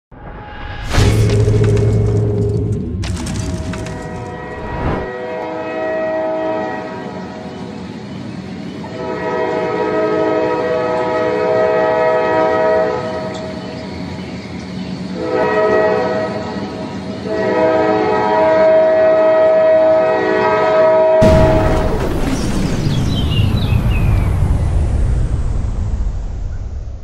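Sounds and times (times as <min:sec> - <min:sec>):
low train rumble: 0:00.1 - 0:27.0
locomotive air horn blasts: 0:04.2 - 0:07.4, 0:08.8 - 0:13.4, 0:15.2 - 0:16.6, 0:17.2 - 0:21.7.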